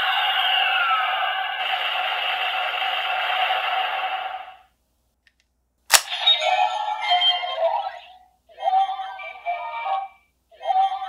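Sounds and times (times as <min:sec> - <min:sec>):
sharp plastic click: 0:05.3 - 0:06.1.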